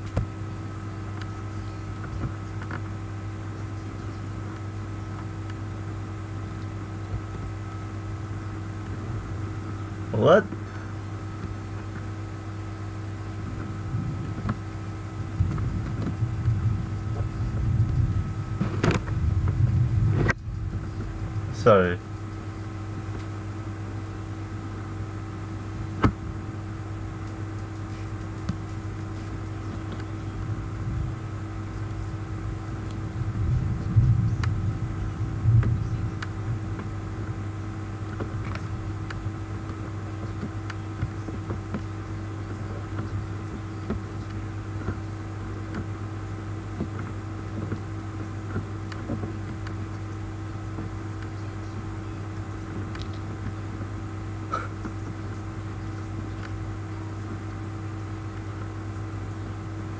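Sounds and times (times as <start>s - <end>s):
low electrical hum: 0.0s - 59.9s
brief low rumble: 15.3s - 21.6s, 29.8s - 37.0s.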